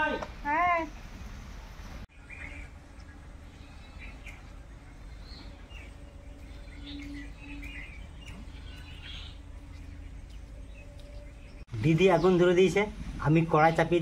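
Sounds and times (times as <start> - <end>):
steady low rumble: 0.9 - 14.0
faint hum: 1.0 - 11.6
bird chirps and calls: 2.1 - 12.4.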